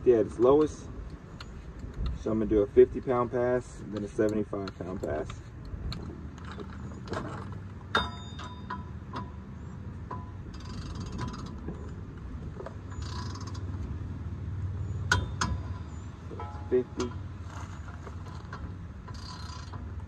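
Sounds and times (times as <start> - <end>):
torque wrench ratcheting: 10.5 - 11.6, 13.0 - 13.6, 17.5 - 19.9.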